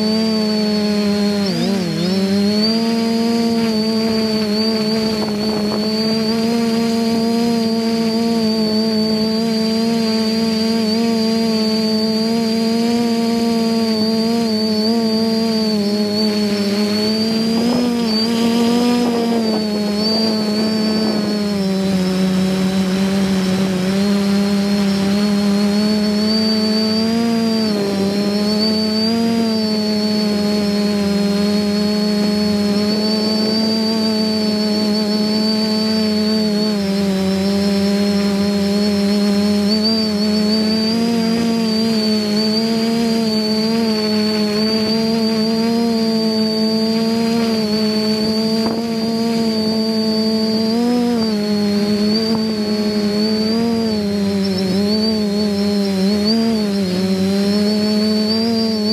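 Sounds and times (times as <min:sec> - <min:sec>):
drone propellers whining: 0:00.0 - 0:58.9
quadcopter motors buzzing: 0:00.0 - 0:58.9.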